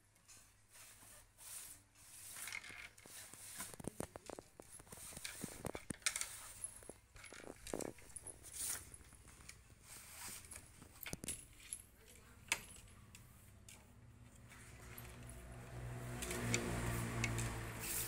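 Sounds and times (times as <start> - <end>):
paper rustling: 0.7 - 11.2.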